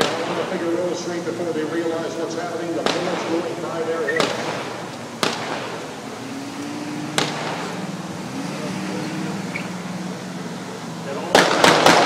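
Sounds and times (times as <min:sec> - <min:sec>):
gunshots: 0:00.0 - 0:01.0, 0:02.7 - 0:06.2, 0:07.0 - 0:07.9, 0:11.2 - 0:12.0.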